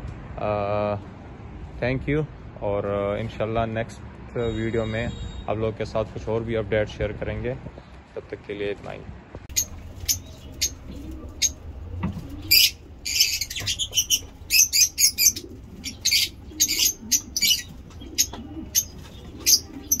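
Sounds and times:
lovebirds chirping: 9.5s - 20.0s.

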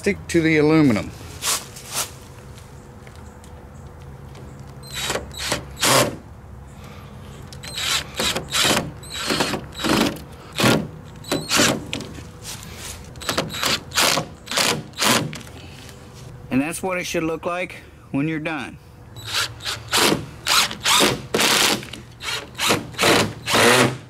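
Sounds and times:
cordless drill driving screws: 7.6s - 11.8s, 19.2s - 24.0s.

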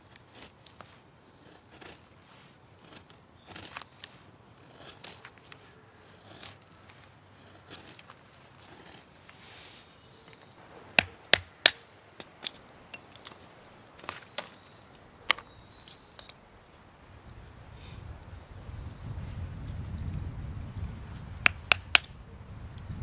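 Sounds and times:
knife scraping wood: 0.0s - 13.4s.

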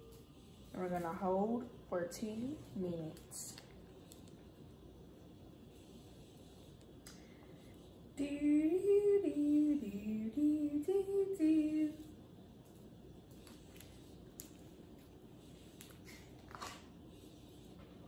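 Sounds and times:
woman singing wordless tune: 8.2s - 12.2s.

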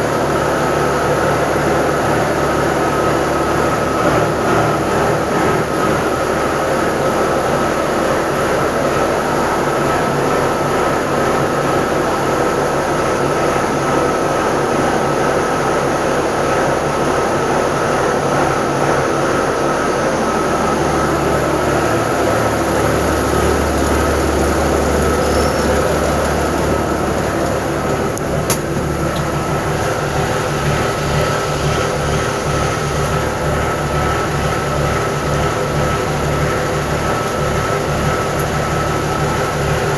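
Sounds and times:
diesel engine idling: 0.0s - 39.9s
high whine: 0.0s - 39.9s.

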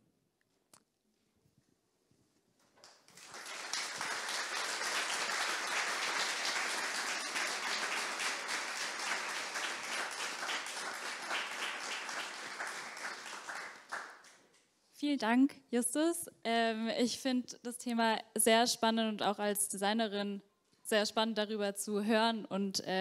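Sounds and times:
audience applauding: 2.8s - 14.4s.

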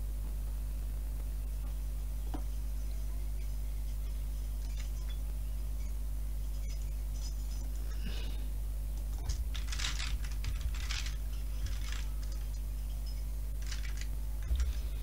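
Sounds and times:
steady low hum: 0.0s - 15.0s
computer keyboard typing: 9.0s - 12.6s, 13.6s - 15.0s.

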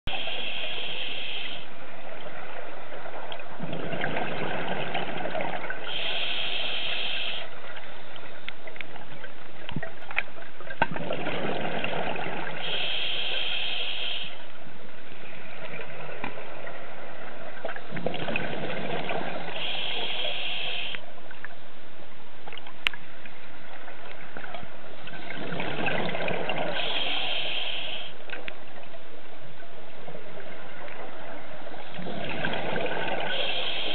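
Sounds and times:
regulator inhale hiss: 0.1s - 1.8s, 5.8s - 7.6s, 12.6s - 14.5s, 19.3s - 21.1s, 26.6s - 28.2s, 33.2s - 33.9s
exhaled bubbles rushing: 3.5s - 5.8s, 10.8s - 12.6s, 17.6s - 19.6s, 25.1s - 26.8s, 31.8s - 33.5s.

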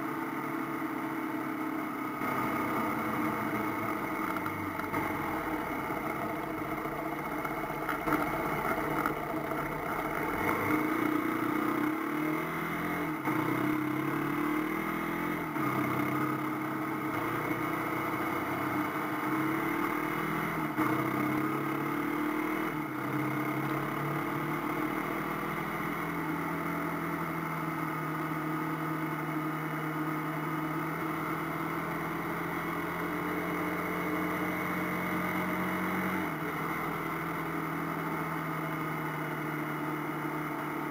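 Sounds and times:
motorcycle engine shifting gears: 1.4s - 29.3s.

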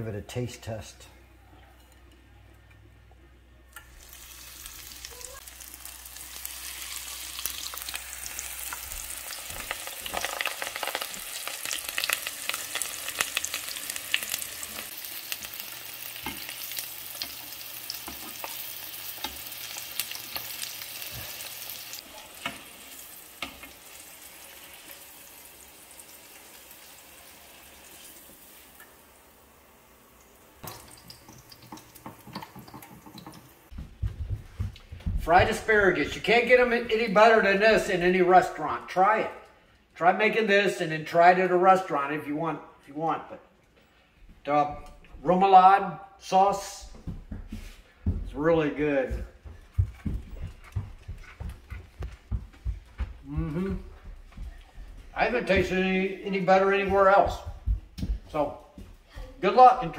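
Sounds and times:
food deep-frying in oil: 3.8s - 33.7s.

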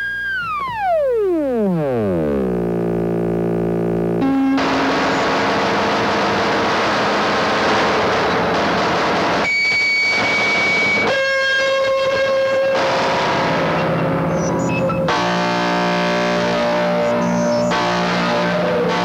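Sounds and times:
high synth tone: 0.0s - 6.6s
synthesizer noise hiss: 0.0s - 18.9s
buzzing synth chord: 0.0s - 19.0s.

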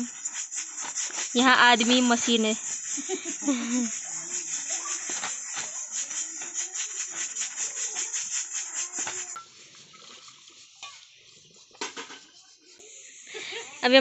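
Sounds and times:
water poured over metal pots: 2.7s - 12.3s
pots clinking: 8.9s - 12.5s.

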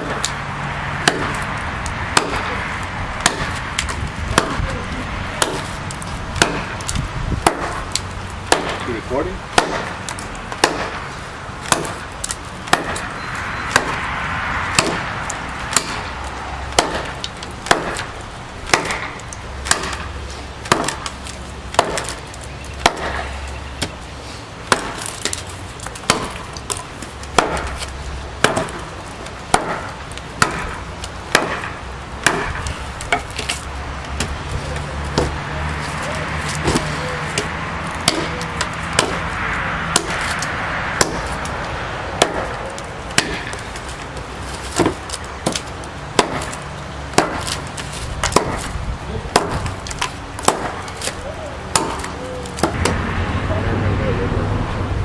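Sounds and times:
knife chopping a log: 1.0s - 1.5s, 2.1s - 2.6s, 3.2s - 4.8s, 5.4s - 5.8s, 6.4s - 11.0s, 11.6s - 13.1s, 13.7s - 14.0s, 14.7s - 15.1s, 15.7s - 16.1s, 16.7s - 18.1s, 18.7s - 24.0s, 24.7s - 28.9s, 29.5s - 35.4s, 36.0s - 39.3s, 39.9s - 41.5s, 42.2s - 53.0s.

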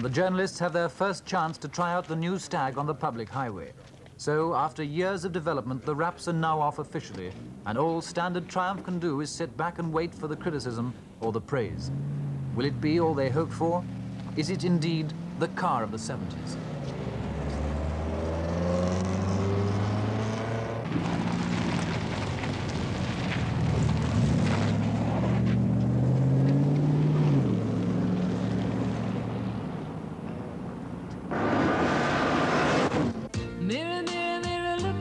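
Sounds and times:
car engine accelerating: 11.6s - 33.3s
rushing noise: 31.3s - 33.3s.

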